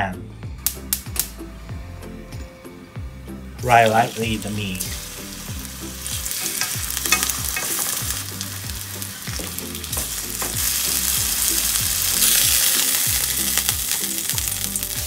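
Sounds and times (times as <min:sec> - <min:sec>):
meat sizzling in hot oil: 0:03.6 - 0:15.0.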